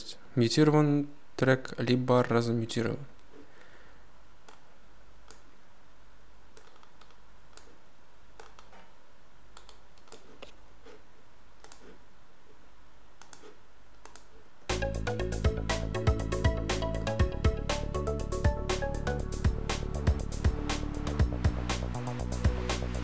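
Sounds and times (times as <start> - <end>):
computer mouse clicks: 4.4 - 5.5, 6.5 - 8.9, 9.5 - 11.0, 11.6 - 12.0, 13.2 - 14.4.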